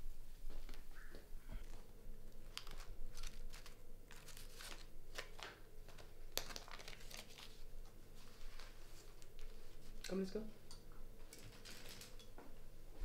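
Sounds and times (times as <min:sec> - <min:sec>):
bag rustling and crinkling: 0:01.6 - 0:10.2, 0:11.4 - 0:12.2.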